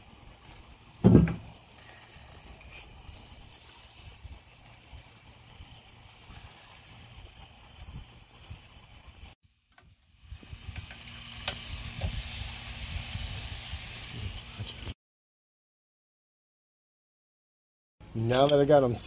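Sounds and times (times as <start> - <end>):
shrimp sizzling on a grill: 0.0 - 15.0.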